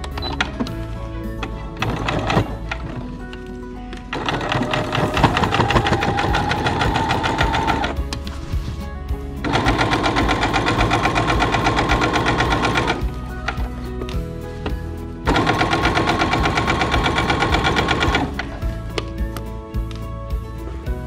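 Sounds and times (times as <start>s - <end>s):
electric sewing machine stitching: 1.8s - 3.0s, 4.1s - 8.0s, 9.4s - 13.5s, 15.3s - 18.6s.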